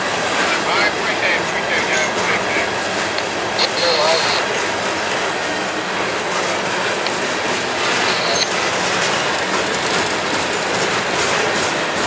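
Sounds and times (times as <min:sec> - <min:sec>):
train wheels clattering on rails: 0:04.7 - 0:12.0
wheel squeal: 0:07.8 - 0:11.8.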